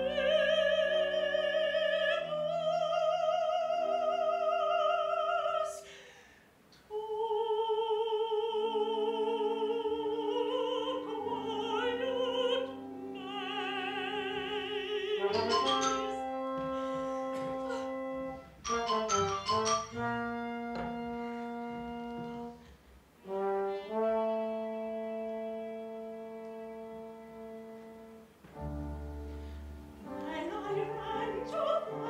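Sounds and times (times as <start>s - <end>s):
woman singing opera: 0.0s - 6.0s, 6.8s - 18.4s, 30.0s - 32.0s
instrumental accompaniment: 10.8s - 32.0s.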